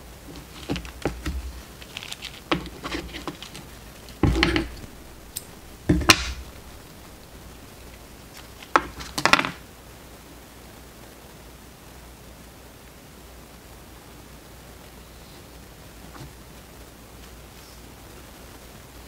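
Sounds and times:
plastic bobbins clicking and clattering: 0.2 - 9.6
knocks on wooden table: 4.2 - 5.0, 5.8 - 6.8.

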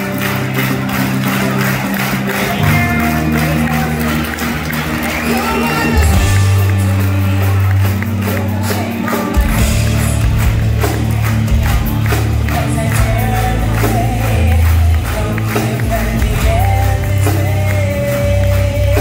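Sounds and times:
metal band playing live: 0.0 - 19.0
woman singing: 5.2 - 10.0, 12.4 - 19.0.

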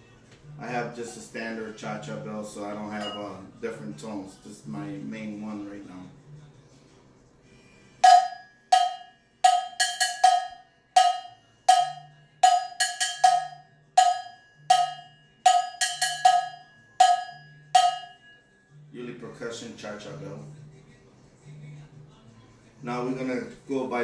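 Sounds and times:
cowbell struck with drumstick: 8.0 - 18.4.

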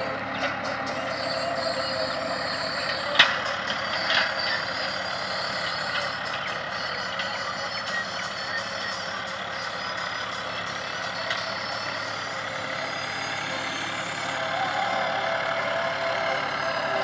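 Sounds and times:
tractor engine under load: 0.0 - 17.0.

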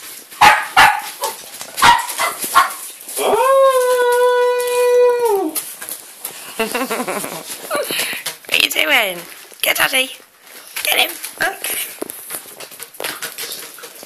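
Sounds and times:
puppy barking: 0.4 - 2.9
puppy howling: 3.1 - 5.6.

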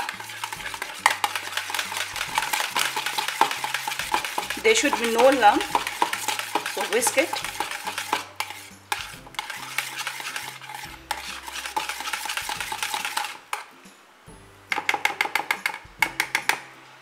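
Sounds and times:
wire whisk scraping a plastic bowl: 0.0 - 13.4.

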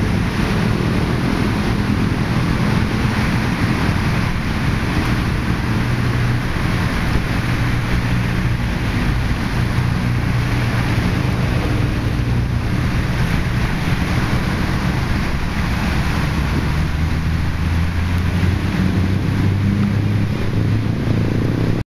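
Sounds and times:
waves breaking along seawall: 0.0 - 21.8
wind buffeting microphone: 0.0 - 21.8.

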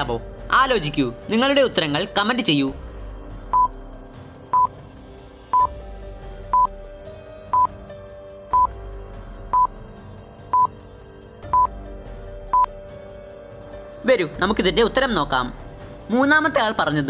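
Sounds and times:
quiet background music: 0.0 - 17.0
short electronic beeps: 3.5 - 3.7, 4.5 - 4.7, 6.5 - 6.7, 9.5 - 9.7, 10.5 - 10.7, 11.5 - 11.7.

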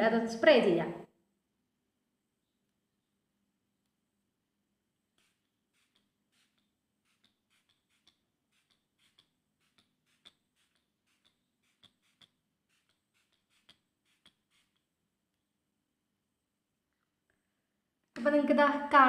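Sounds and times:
spray bottle spritzes: 5.1 - 15.0.

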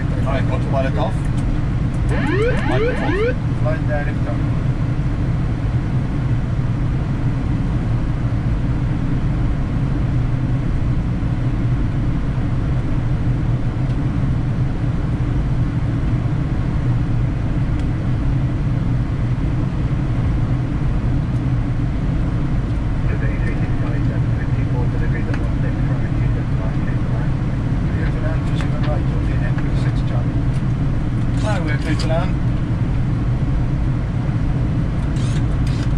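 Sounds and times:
flight deck rumble: 10.8 - 35.9.

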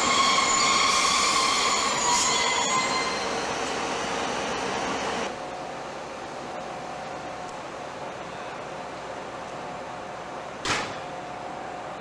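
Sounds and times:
train wheels squealing: 0.0 - 3.8
rolling rail noise: 0.0 - 12.0.

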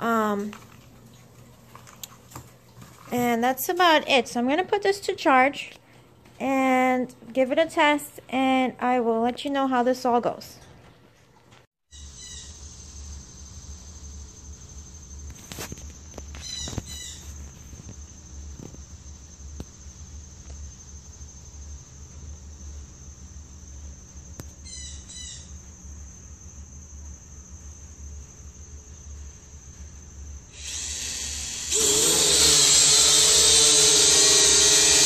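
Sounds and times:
chirping calls: 11.9 - 12.6
high insect trill: 11.9 - 35.0.

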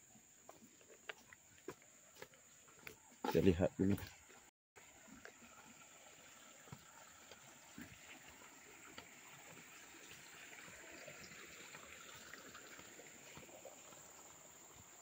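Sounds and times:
footsteps on leaf litter: 0.5 - 4.2.

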